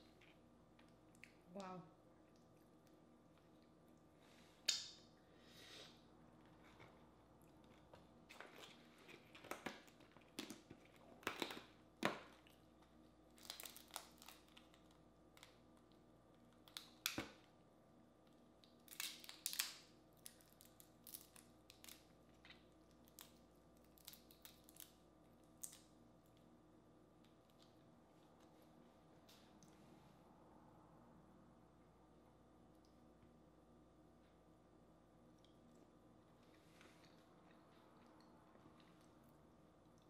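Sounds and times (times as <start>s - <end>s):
crawfish shells cracking: 8.3s - 12.6s, 13.3s - 15.9s, 18.6s - 25.9s.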